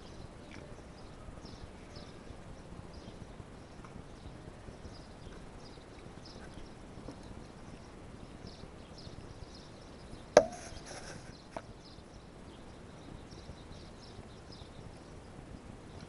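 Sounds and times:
sharp knock on camera: 10.4 - 10.8
short scratching: 10.4 - 11.5
faint rustling: 10.4 - 11.6.

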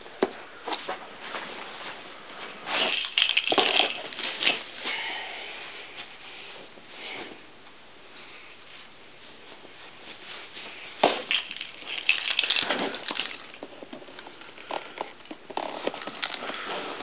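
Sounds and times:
packaging crinkling and rustling: 2.7 - 4.7, 11.0 - 17.0.

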